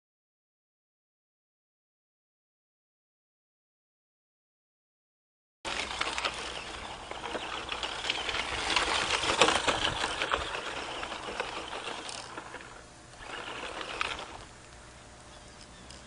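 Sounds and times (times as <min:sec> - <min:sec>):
electric motor and gear whine: 0:05.7 - 0:16.0
tyres crunching gravel: 0:05.7 - 0:16.0.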